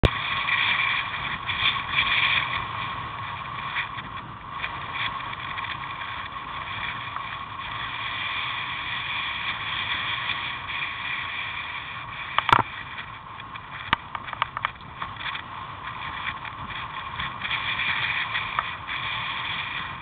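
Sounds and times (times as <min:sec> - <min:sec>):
wind and road noise: 0:00.0 - 0:20.0.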